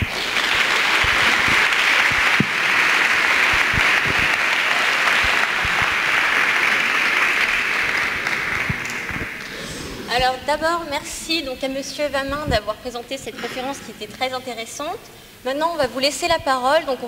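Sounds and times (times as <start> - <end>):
audience applause: 0.0 - 9.6.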